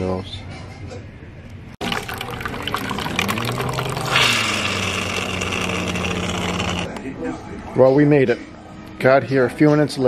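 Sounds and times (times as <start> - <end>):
hiss of coffee pouring: 1.8 - 6.3
coffee machine pump humming: 1.8 - 7.0.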